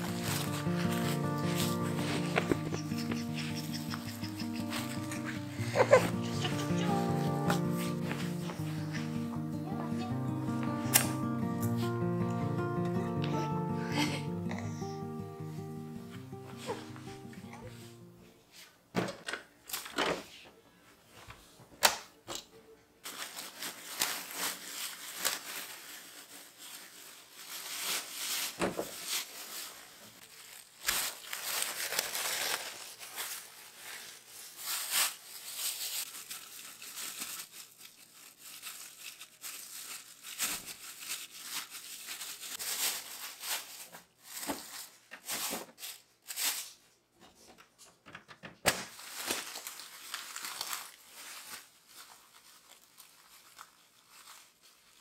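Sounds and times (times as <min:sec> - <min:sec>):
plastic bag rustling and crinkling: 0:00.0 - 0:12.7, 0:23.0 - 0:46.9, 0:48.7 - 0:55.0.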